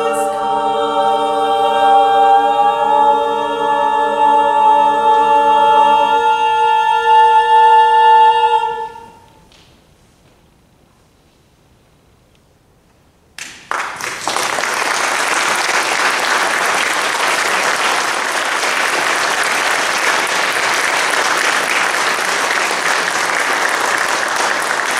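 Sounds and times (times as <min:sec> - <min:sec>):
audience applause: 0:13.4 - 0:24.9.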